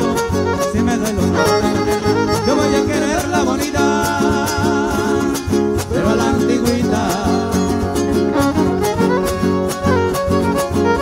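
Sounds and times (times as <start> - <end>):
violin melody: 0.0 - 5.6, 7.5 - 11.0
guitars strumming: 0.0 - 11.0.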